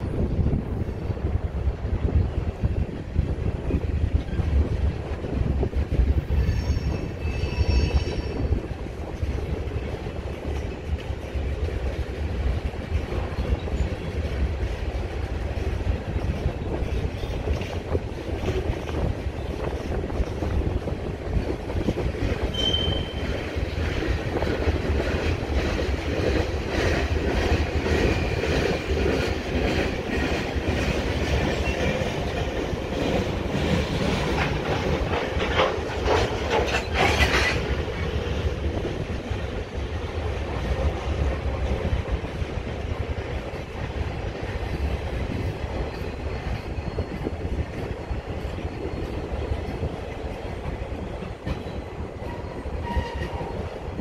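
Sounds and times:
freight train rumbling past: 0.0s - 54.0s
wheels clacking over rail joints: 3.9s - 54.0s
high-pitched wheel squeal: 6.4s - 8.5s, 22.5s - 23.2s, 52.2s - 53.4s.

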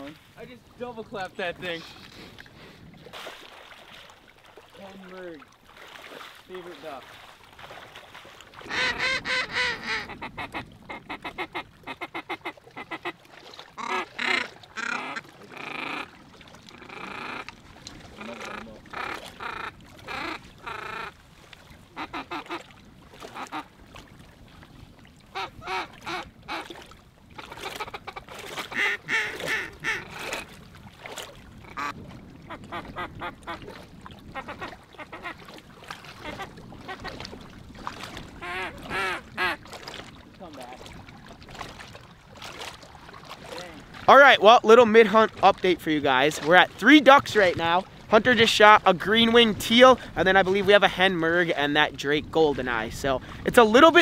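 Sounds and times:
waterfowl honking calls: 8.6s - 21.2s, 21.8s - 23.8s, 25.3s - 30.6s, 31.6s - 33.7s, 34.3s - 35.5s, 36.1s - 37.2s, 38.4s - 39.7s.

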